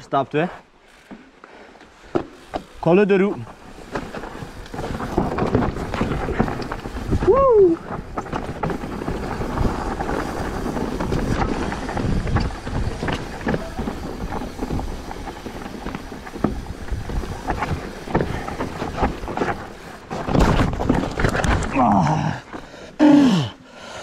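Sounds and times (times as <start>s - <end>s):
bike tyres rumbling on trail: 0.0s - 24.0s
bike rattling and knocking: 0.8s - 22.8s
wind buffeting microphone: 3.8s - 19.9s.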